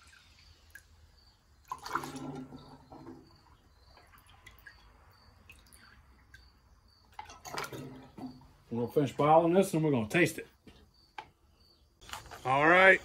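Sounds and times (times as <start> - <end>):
liquid splashing and dripping: 0.0 - 8.6.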